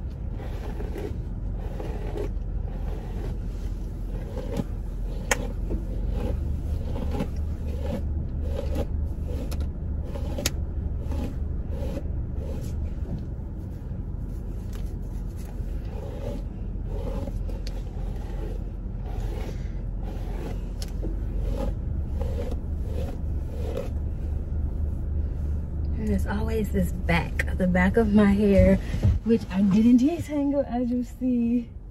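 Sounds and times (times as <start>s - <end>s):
low car hum: 0.0s - 31.9s
brush raking through hair: 0.3s - 13.0s, 14.3s - 24.0s.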